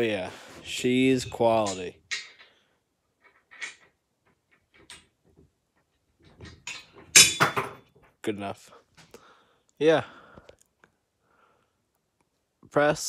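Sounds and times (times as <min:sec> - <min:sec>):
steel parts clinking and knocking: 0:01.2 - 0:02.6, 0:03.2 - 0:08.0.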